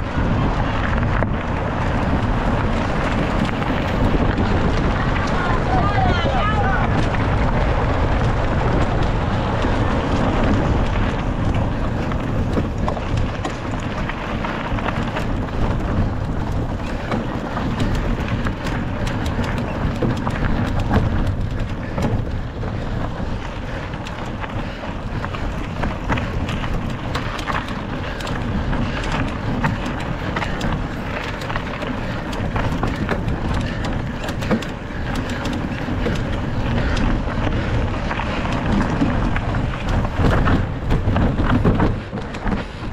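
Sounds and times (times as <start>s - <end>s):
bike clicks and rattles: 0.0s - 42.9s
wind on microphone: 0.0s - 42.9s.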